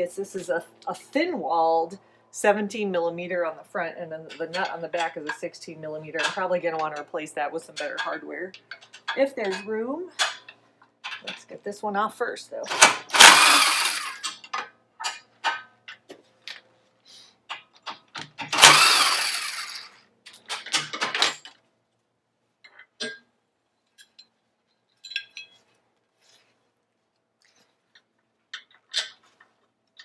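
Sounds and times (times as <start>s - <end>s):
metal bolts clinking and knocking: 6.1s - 11.5s, 13.8s - 16.7s, 19.6s - 21.6s, 22.6s - 25.7s, 27.9s - 30.0s.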